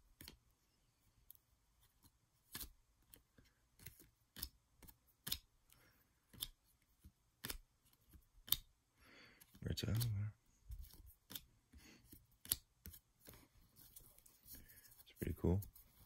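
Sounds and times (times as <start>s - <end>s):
cards snapping as dealt: 3.8s - 5.5s, 6.3s - 6.6s, 7.4s - 7.6s, 8.4s - 8.7s, 10.8s - 11.5s, 12.4s - 13.4s.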